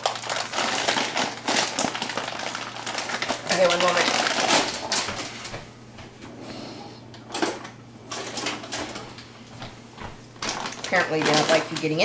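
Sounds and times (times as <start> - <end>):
plastic bag crinkling: 0.0 - 5.6, 10.4 - 12.0
low steady hum: 0.0 - 12.0.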